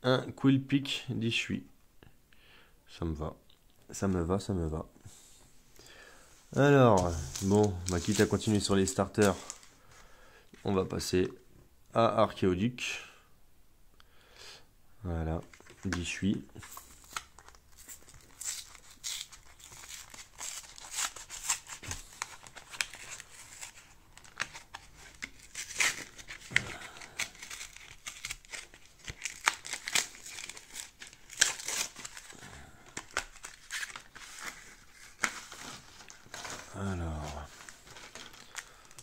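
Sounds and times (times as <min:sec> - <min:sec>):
foil wrapper crinkling and tearing: 0:07.0 - 0:09.7, 0:16.6 - 0:39.0.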